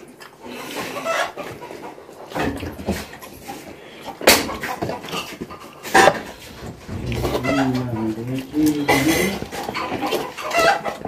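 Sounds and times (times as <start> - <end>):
steel dishes clattering: 8.8 - 10.9.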